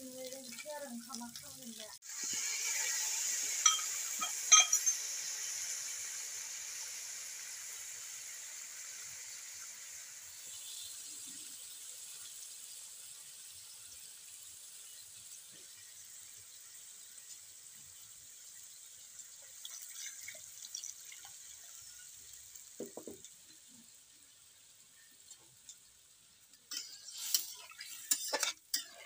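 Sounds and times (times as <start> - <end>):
chicken sizzling in a wok: 0.0 - 29.0
metal clinks: 3.6 - 5.0.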